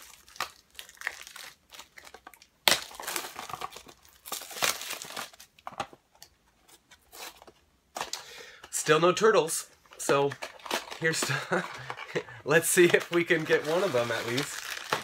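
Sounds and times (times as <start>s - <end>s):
packaging crinkling and tearing: 0.0s - 5.6s, 10.2s - 15.0s.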